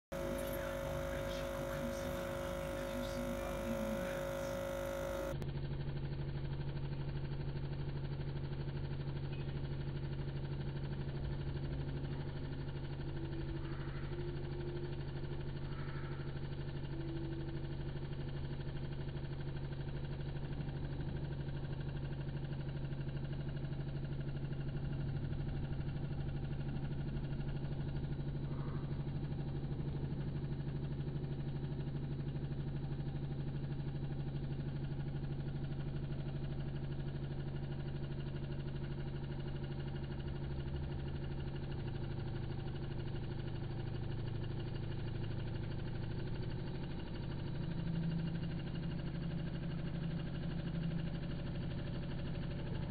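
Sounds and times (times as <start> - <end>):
aquarium pump humming: 0.1 - 52.9.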